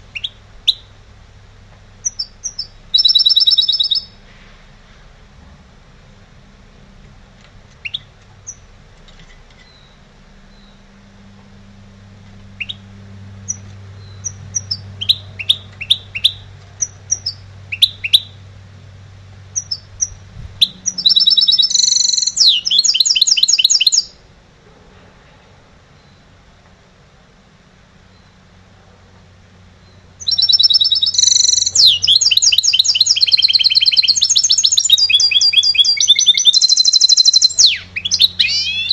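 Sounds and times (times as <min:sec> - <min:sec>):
low hum and hiss: 0:00.0 - 0:38.9
finch chirping and trilling: 0:02.0 - 0:04.2, 0:13.5 - 0:18.3, 0:19.6 - 0:24.1, 0:29.8 - 0:38.9.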